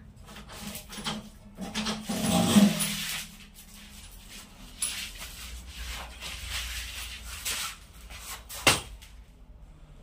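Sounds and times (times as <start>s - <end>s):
rubber hose swishing and rubbing: 2.0s - 8.8s.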